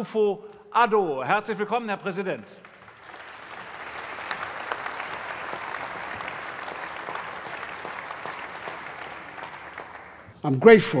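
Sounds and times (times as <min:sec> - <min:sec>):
audience applauding: 0:02.6 - 0:10.4.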